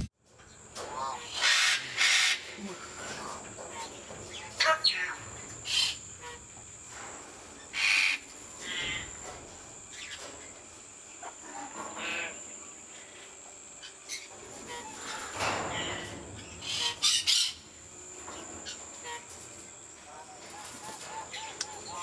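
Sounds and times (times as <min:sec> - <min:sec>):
steady high whine: 0:00.0 - 0:22.0
parrot calls and chirps: 0:16.4 - 0:17.7.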